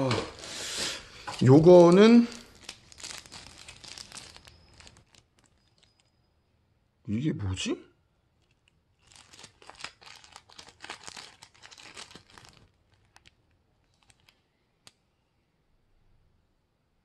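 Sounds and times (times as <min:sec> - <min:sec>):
packaging crinkling: 0:00.1 - 0:06.2, 0:08.3 - 0:15.0.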